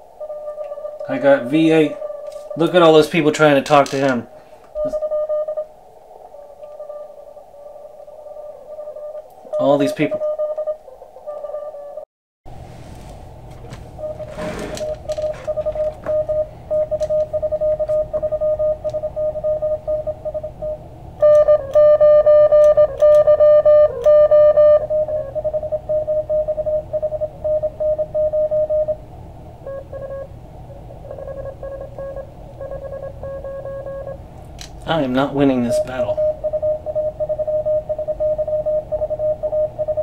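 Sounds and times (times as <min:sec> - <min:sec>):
morse code beeps: 0:00.2 - 0:04.1, 0:04.8 - 0:05.7, 0:06.6 - 0:07.2, 0:08.3 - 0:12.0, 0:14.0 - 0:29.0, 0:29.6 - 0:34.2, 0:34.8 - 0:40.0
radio band hiss: 0:34.8 - 0:36.4.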